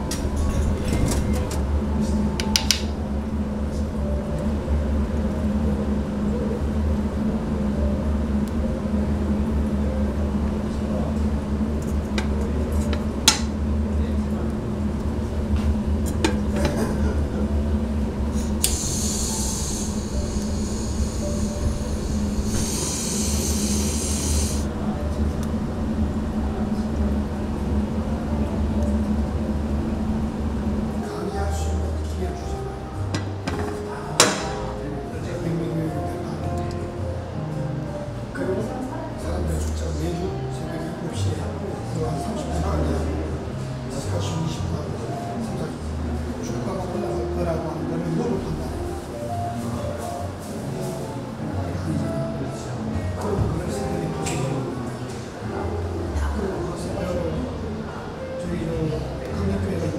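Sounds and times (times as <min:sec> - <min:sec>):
low hum: 0:00.0 - 0:32.0
hisses: 0:18.5 - 0:24.7.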